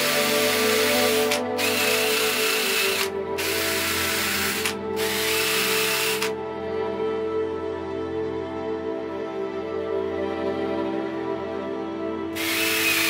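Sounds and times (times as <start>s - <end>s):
background music: 0.0s - 13.0s.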